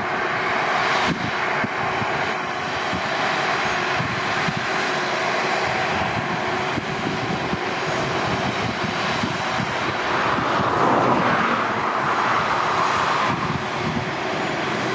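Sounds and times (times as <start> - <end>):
tractor and baler droning: 0.0 - 14.9.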